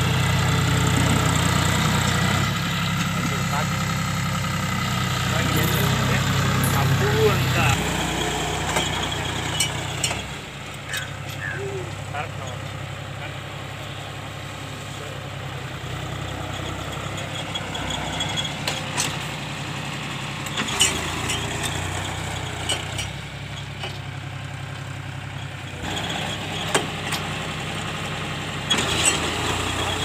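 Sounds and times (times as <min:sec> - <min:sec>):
tractor diesel engine running: 0:00.0 - 0:30.0
sharp clicks and knocks: 0:08.6 - 0:11.4.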